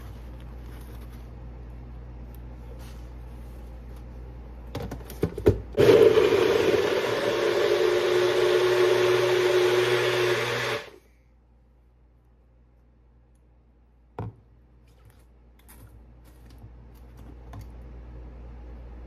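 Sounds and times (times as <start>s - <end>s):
blender running: 5.8s - 11.0s.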